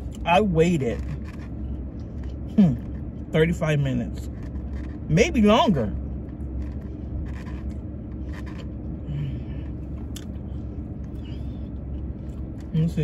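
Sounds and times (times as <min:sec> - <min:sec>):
crunchy scrapes and clicks: 0:00.0 - 0:03.2, 0:04.1 - 0:05.1, 0:06.2 - 0:08.9
car cabin hum: 0:00.0 - 0:13.0
person chewing: 0:09.4 - 0:12.7.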